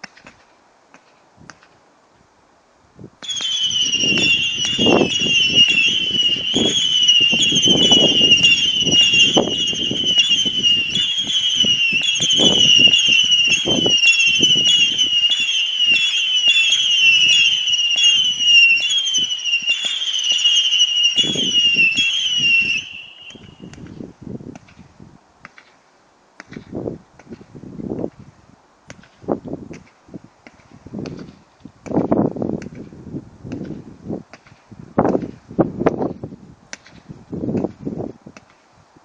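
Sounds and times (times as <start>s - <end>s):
firework whistles: 3.2s - 24.0s
firework launch thumps and pops: 23.3s - 25.8s, 26.4s - 28.2s, 28.9s - 32.9s, 33.5s - 36.1s, 36.7s - 38.6s.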